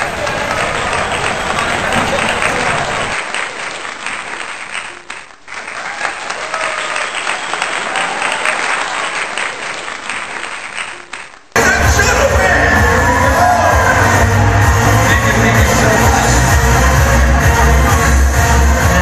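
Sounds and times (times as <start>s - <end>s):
crowd applauding: 0.0s - 18.1s
loud music: 11.6s - 19.0s
scattered voices: 11.6s - 19.0s.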